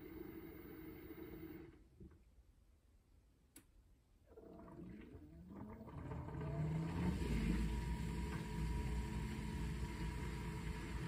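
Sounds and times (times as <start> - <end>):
dishwasher motor whine: 0.0 - 1.8, 4.3 - 11.0.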